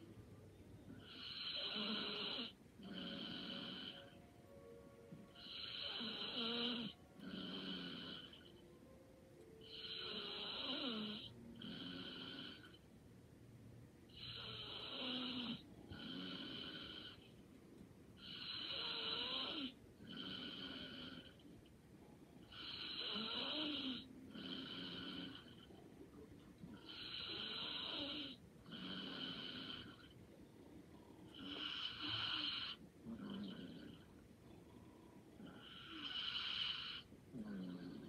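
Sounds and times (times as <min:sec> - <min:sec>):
person snoring lightly: 0:26.7 - 0:30.1, 0:31.3 - 0:34.1.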